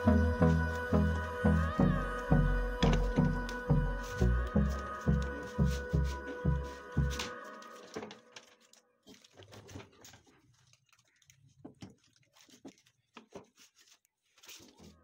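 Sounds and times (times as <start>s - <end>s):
background music: 0.0s - 8.4s.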